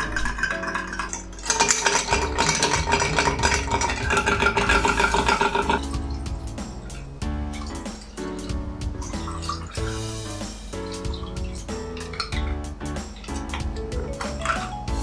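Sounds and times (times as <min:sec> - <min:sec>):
ice clinking against glass: 0:00.0 - 0:06.0, 0:09.0 - 0:10.1.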